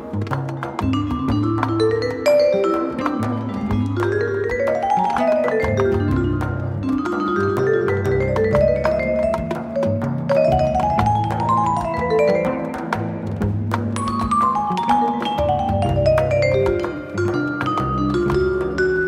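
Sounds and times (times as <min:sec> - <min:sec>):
bright notes over bass: 0:00.7 - 0:19.0.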